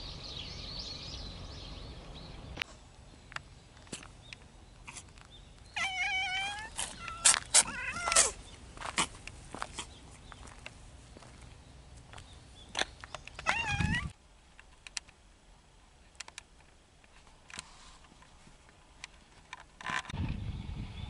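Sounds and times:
cat meowing: 5.8 - 8.4, 13.4 - 14.1.

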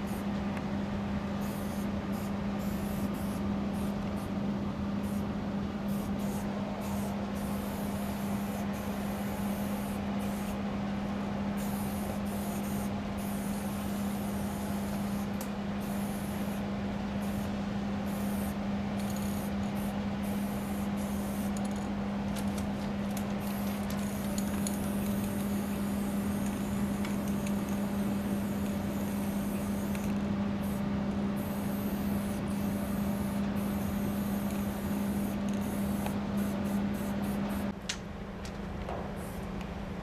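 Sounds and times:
spray paint can hissing: 1.4 - 3.9, 5.9 - 10.6, 11.6 - 16.6, 18.1 - 21.8, 23.0 - 30.8, 31.4 - 37.7.

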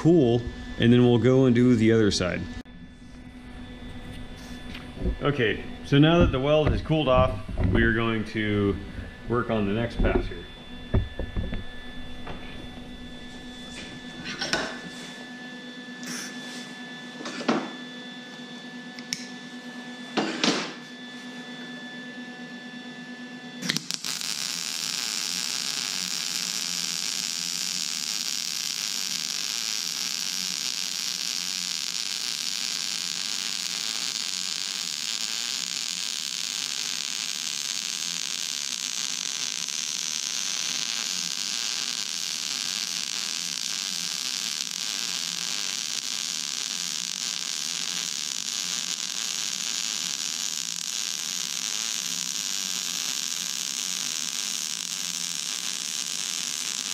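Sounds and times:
steady hum: 0.0 - 21.6, 22.8 - 56.9
welding arc hissing: 3.8 - 7.2, 23.6 - 56.9.

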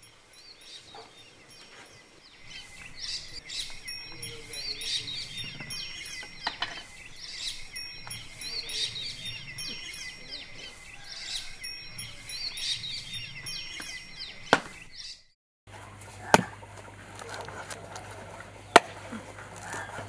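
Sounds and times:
small birds chirping: 0.0 - 15.4
steady thin high tone: 3.4 - 14.4.

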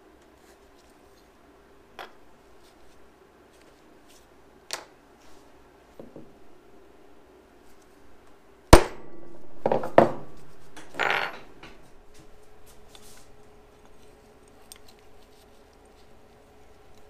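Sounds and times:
metal tools clattering: 10.8 - 11.8.

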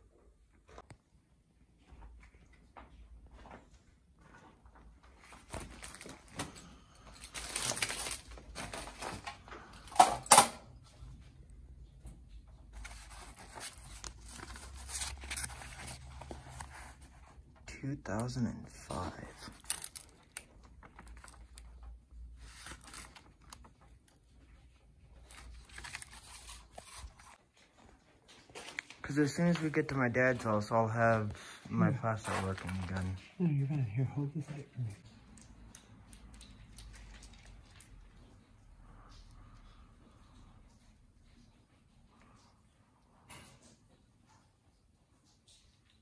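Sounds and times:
paper rustling and crinkling: 2.9 - 10.0, 12.5 - 33.4.

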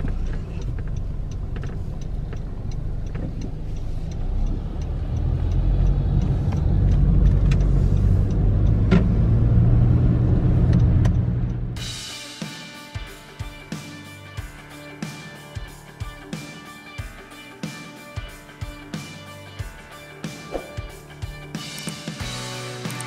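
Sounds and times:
car road and engine rumble: 0.0 - 11.8.

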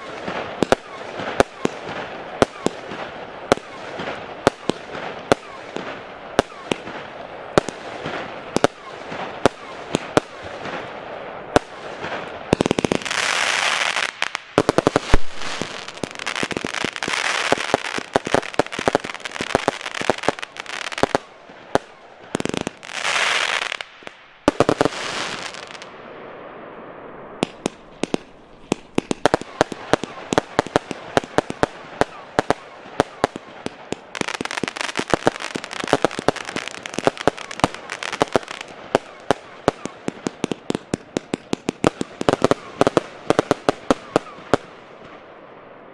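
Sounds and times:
firework bangs and pops: 0.0 - 25.9, 27.4 - 45.2
firework crackling: 0.0 - 45.3.

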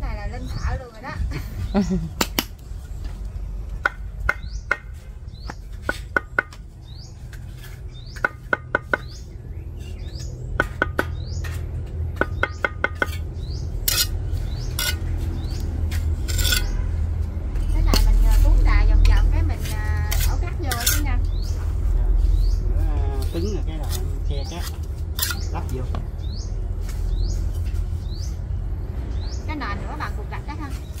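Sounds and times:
bird chirping: 0.0 - 3.2, 4.2 - 31.0
trowel tapping bricks: 3.8 - 6.6, 7.3 - 9.2, 10.1 - 14.1, 14.8 - 15.0, 15.9 - 16.7
mortar scraping: 7.2 - 9.2, 9.8 - 21.4, 22.2 - 25.7.

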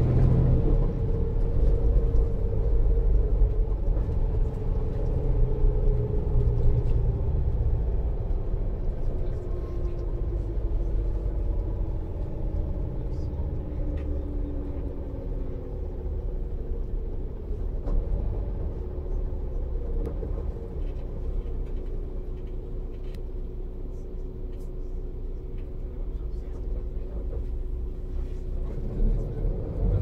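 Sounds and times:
bus diesel engine: 0.0 - 30.0
road rumble: 0.0 - 30.0.

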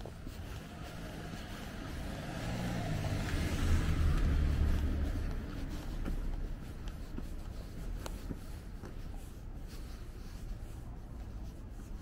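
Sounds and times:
car driving past: 0.3 - 6.6.

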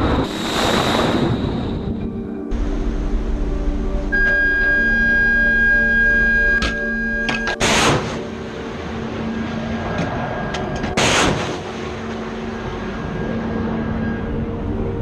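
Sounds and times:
missile launch blast: 11.0 - 12.0.

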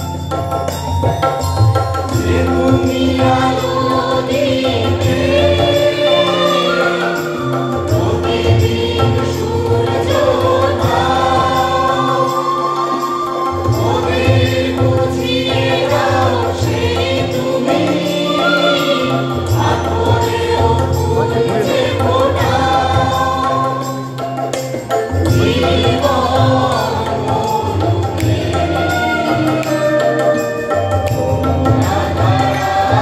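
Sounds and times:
steady drone: 1.8 - 24.6.

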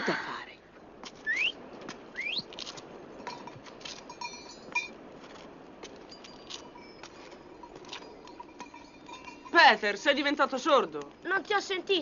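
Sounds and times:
small bells tinkling: 3.0 - 12.0.

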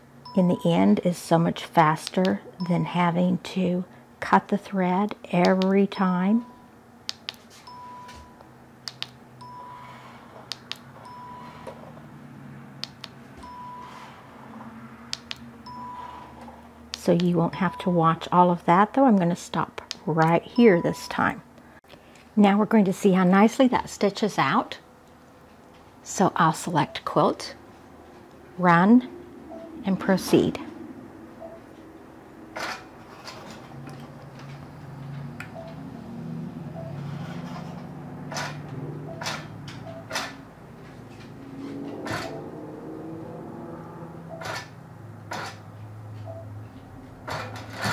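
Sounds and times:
steady low hum: 0.0 - 47.9
short electronic beeps: 7.6 - 8.4, 9.4 - 10.2, 11.0 - 11.7, 13.4 - 14.2, 15.6 - 16.3, 20.6 - 21.3, 29.5 - 29.8, 31.4 - 31.7, 35.5 - 35.8, 36.7 - 37.0, 39.1 - 40.1, 44.3 - 44.6, 46.2 - 46.5.

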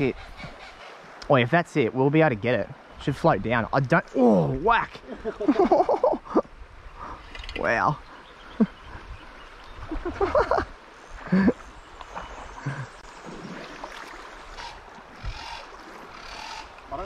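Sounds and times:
wind: 0.0 - 17.0
river flowing: 3.9 - 17.0
person exclaiming: 4.1 - 4.9.

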